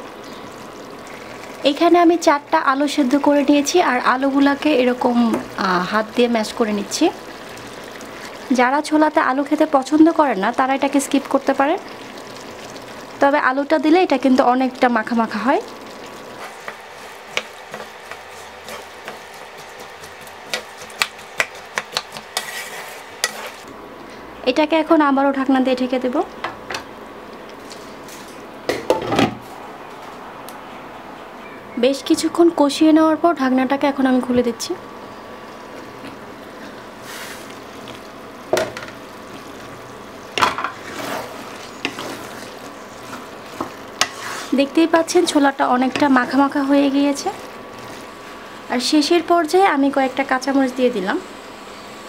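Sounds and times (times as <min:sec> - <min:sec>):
pan sizzling: 0:00.0 - 0:29.1, 0:32.2 - 0:52.0
wooden spatula scraping a wok: 0:16.3 - 0:23.7, 0:36.6 - 0:48.8.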